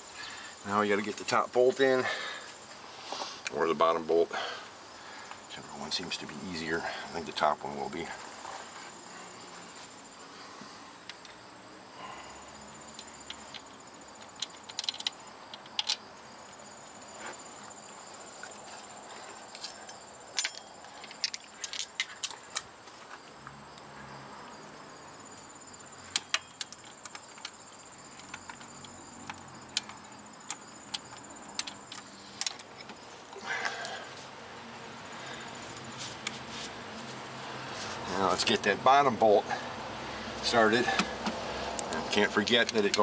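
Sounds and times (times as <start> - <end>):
high insect trill: 0.0 - 43.0
metal clicks of hand tools: 12.9 - 16.0, 19.5 - 22.7, 26.1 - 27.6, 28.2 - 33.0, 40.9 - 43.0.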